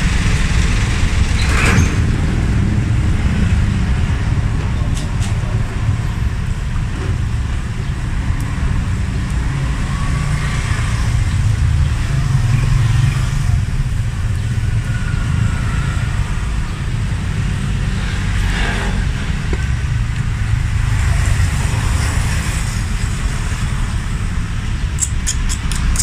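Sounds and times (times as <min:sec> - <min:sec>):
motor vehicle rumble: 0:00.0 - 0:26.0
sharp high ticks: 0:25.0 - 0:26.0.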